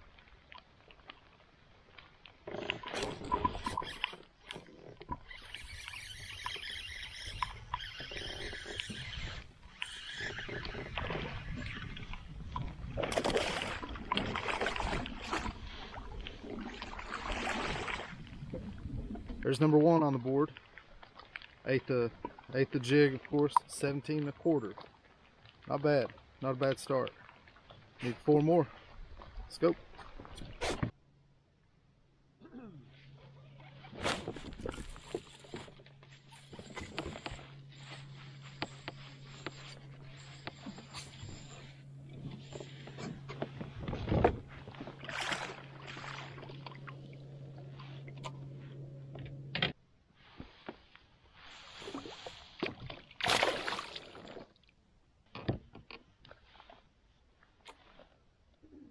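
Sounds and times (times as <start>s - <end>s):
water sloshing in net: 12.9s - 19.2s, 33.7s - 48.8s, 51.4s - 54.6s
low steady hum: 31.0s - 50.1s
fish splashing at surface: 53.2s - 54.4s.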